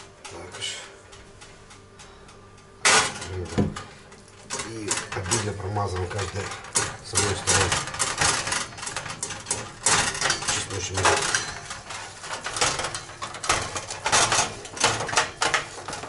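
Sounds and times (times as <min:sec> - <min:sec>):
clatter and knocks against metal tray: 0:02.8 - 0:03.9, 0:04.5 - 0:16.0.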